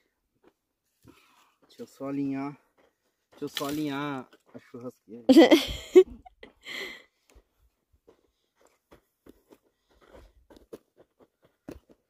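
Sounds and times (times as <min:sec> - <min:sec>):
wooden sticks crunching and knocking: 0:03.4 - 0:04.5.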